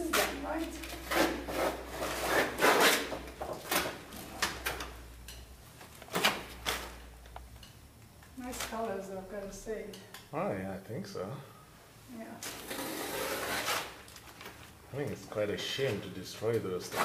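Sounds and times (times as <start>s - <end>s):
rough scraping and rubbing: 0.0s - 3.1s, 12.6s - 14.0s.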